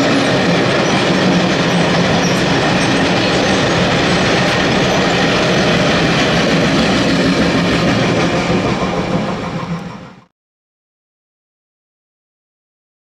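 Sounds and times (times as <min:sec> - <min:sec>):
freight train rolling on rails: 0:00.0 - 0:10.3.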